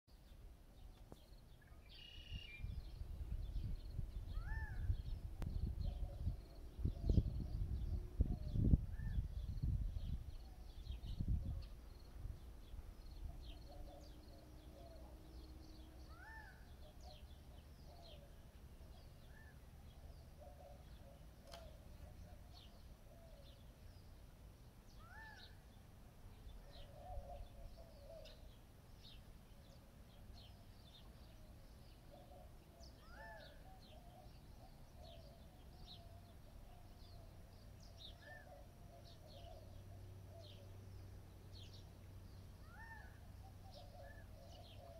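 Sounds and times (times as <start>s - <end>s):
birds chirping: 0.2s - 44.9s
rising bird call: 1.7s - 2.8s, 4.3s - 7.6s, 16.0s - 17.2s, 25.0s - 25.6s, 32.2s - 34.3s, 42.6s - 44.9s.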